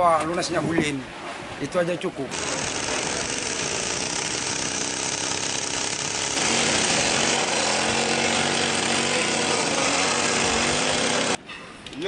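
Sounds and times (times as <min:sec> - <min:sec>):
chainsaw cutting wood: 0:02.3 - 0:11.4
handheld power tool running: 0:02.3 - 0:11.4.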